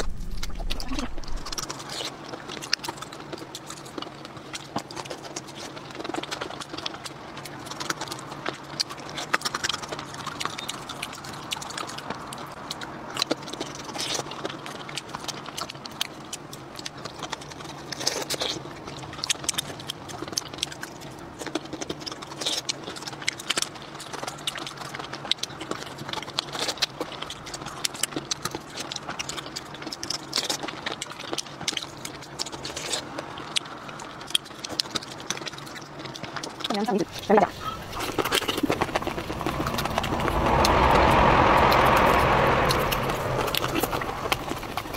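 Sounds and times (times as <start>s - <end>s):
faint low hum: 0.0s - 17.6s
person chewing and sucking: 0.0s - 40.2s.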